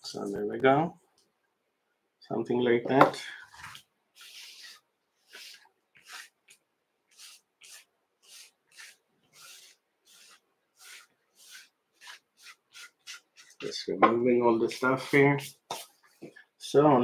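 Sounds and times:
scratchy rubbing strokes: 3.5s - 13.8s, 14.6s - 16.4s.

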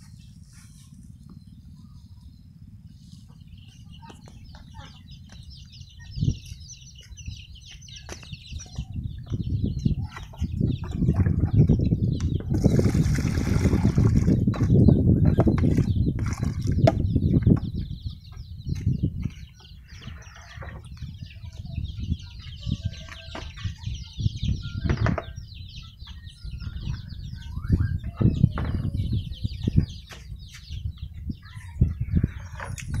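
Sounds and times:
birds chirping: 0.0s - 33.0s
water splashing in plastic basin: 12.5s - 14.5s, 15.7s - 16.8s.

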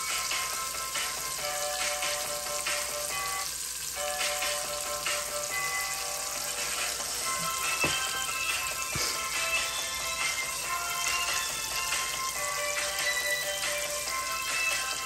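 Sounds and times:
background music: 0.0s - 15.0s
garlic sizzling in a pot: 0.0s - 15.0s.

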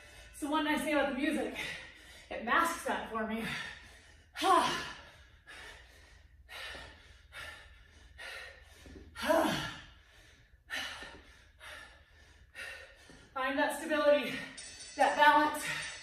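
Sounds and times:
woman panting rhythmically: 0.0s - 16.0s
woman gasping: 3.3s - 13.3s.

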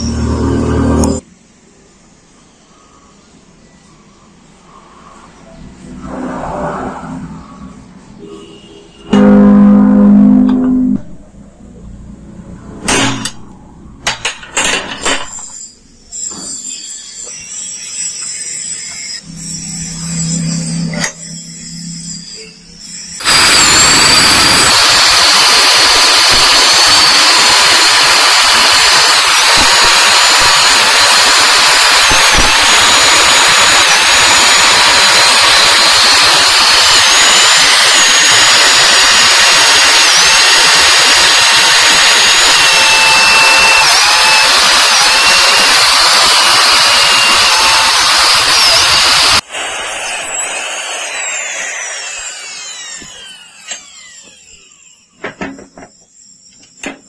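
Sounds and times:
power drill grinding through steel: 0.0s - 1.2s, 14.2s - 55.9s.

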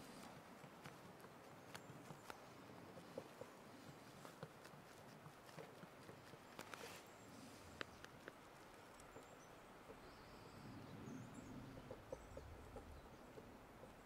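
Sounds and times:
paint brush scraping canvas: 2.9s - 7.6s
faint small ticks: 7.7s - 10.4s.

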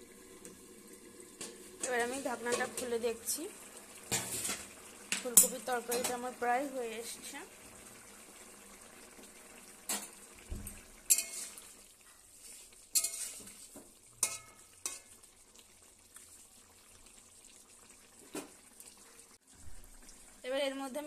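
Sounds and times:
curry simmering with low sizzle: 0.0s - 21.0s
metal utensil clanking on pan: 1.4s - 3.0s, 4.1s - 6.3s, 11.1s - 11.6s, 12.9s - 13.6s, 14.2s - 15.1s.

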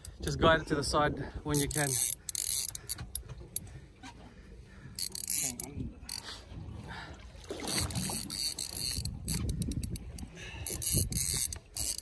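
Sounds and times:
water slapping against boat hull: 6.6s - 10.2s.

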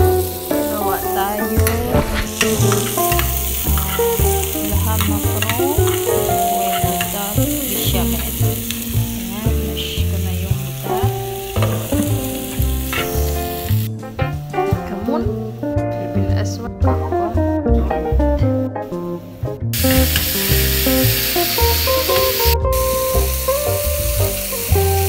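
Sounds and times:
onions sizzling in a pan: 0.0s - 14.0s, 19.8s - 25.0s
background music with bass line: 0.0s - 25.0s
metal spoon scraping a pan: 1.4s - 8.8s.

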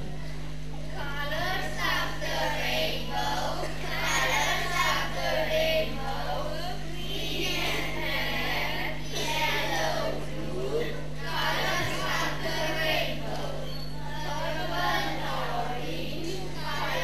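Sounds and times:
steady low hum: 0.0s - 17.0s
children singing: 1.2s - 17.0s.

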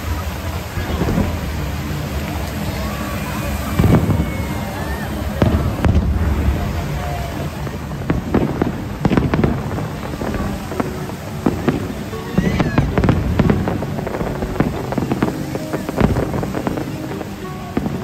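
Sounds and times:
fireworks bangs and crackles: 0.0s - 18.0s.

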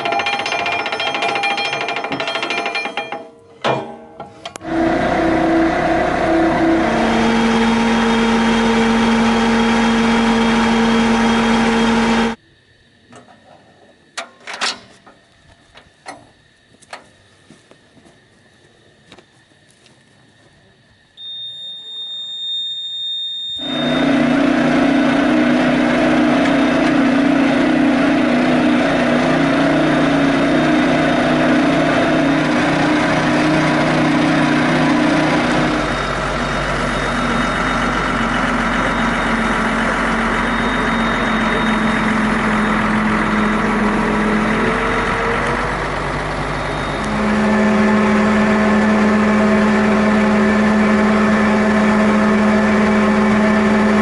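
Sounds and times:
heavy tractor engine: 0.0s - 12.4s, 23.6s - 54.0s
winch drive: 0.0s - 12.4s, 21.2s - 54.0s.

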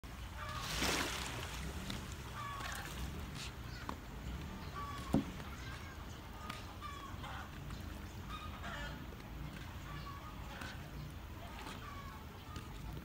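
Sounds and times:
low steady rumble: 0.0s - 13.0s
fowl honking clucks: 8.3s - 9.0s.

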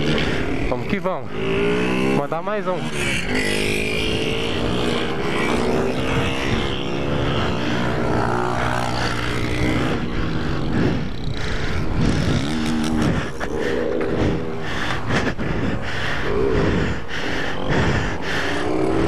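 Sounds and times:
motorcycle engine revving: 0.0s - 19.0s
wind rumbling on microphone: 9.4s - 17.0s.

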